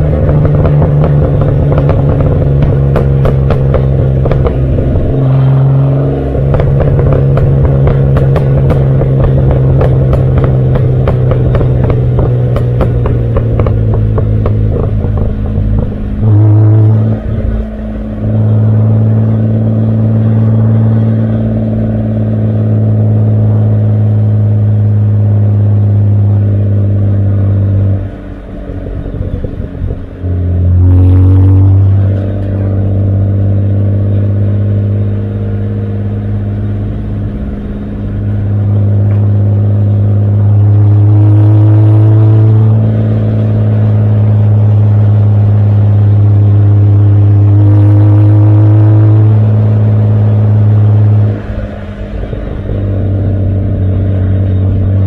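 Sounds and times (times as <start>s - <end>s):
car exhaust note while driving: 0.0s - 55.0s.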